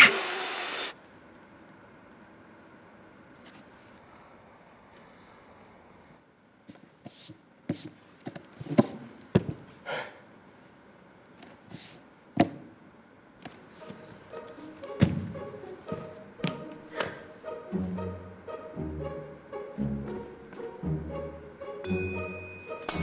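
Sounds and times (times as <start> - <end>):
soft bowed-string music: 13.8 - 23.0
heavy thump: 15.0 - 15.4.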